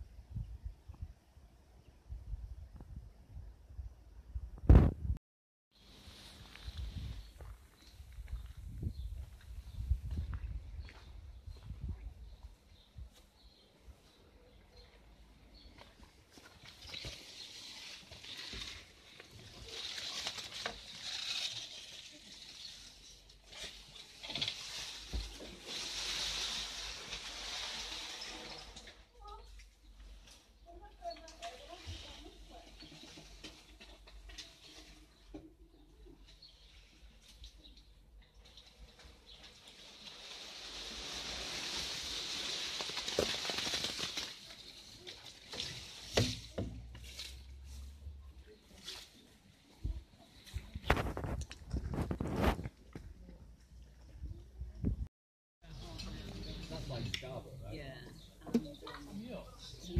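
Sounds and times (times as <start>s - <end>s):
leaves and twigs rustling: 5.8s - 14.9s, 15.6s - 35.3s, 36.2s - 53.2s.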